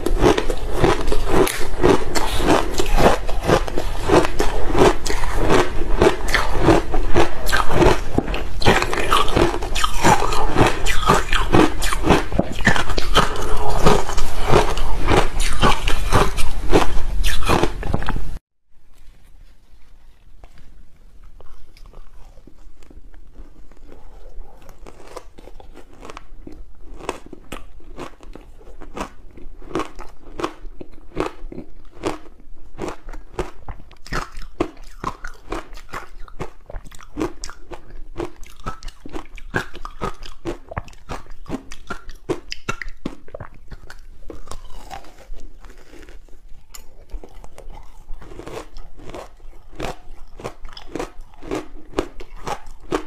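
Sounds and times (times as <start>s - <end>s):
crunching ice between teeth: 0.0s - 18.2s, 24.6s - 53.0s.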